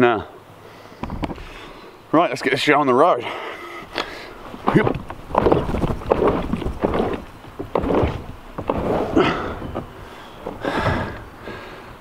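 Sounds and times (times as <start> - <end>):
rustling: 3.8 - 11.7
dull knocks on kayak: 4.6 - 11.2.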